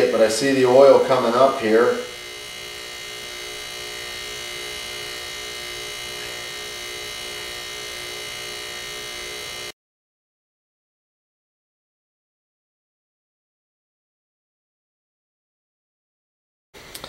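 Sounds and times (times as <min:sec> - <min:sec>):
compressor pump humming: 0:00.0 - 0:09.8, 0:16.8 - 0:17.0.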